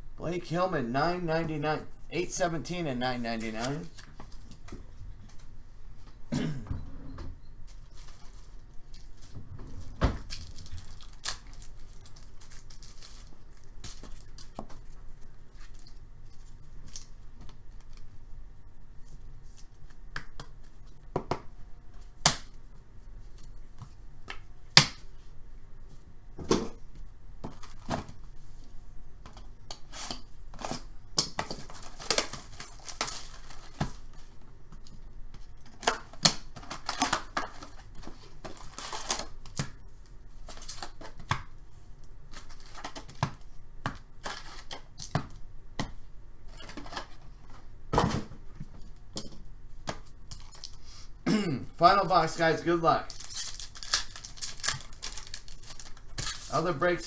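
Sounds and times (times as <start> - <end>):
shrink-wrap crinkling and tearing: 10.2 - 14.9, 31.5 - 34.2, 35.6 - 39.6, 53.0 - 57.0.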